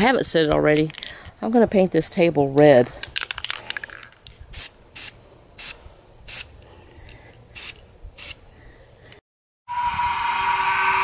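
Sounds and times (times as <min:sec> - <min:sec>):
spray can hissing: 0:04.3 - 0:06.5, 0:07.6 - 0:08.4.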